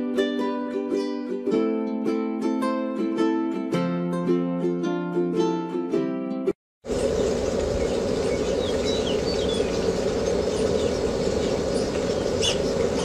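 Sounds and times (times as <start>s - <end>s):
faint bird chirps: 6.9s - 13.0s
mechanical droning: 6.9s - 13.0s.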